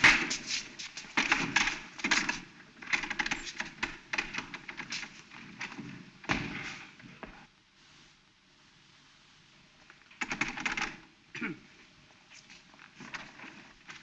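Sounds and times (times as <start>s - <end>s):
wooden gate rattling: 1.1s - 6.8s.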